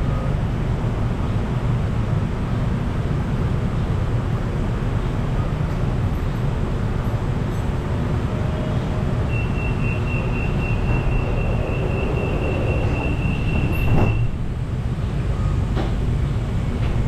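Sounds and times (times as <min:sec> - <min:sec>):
high door-closing warning tone: 0:09.2 - 0:14.5
sliding doors shutting thump: 0:12.6 - 0:14.5.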